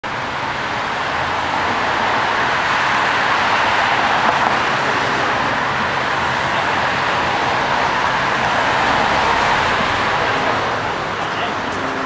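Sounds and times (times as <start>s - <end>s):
city street traffic: 0.0s - 12.0s.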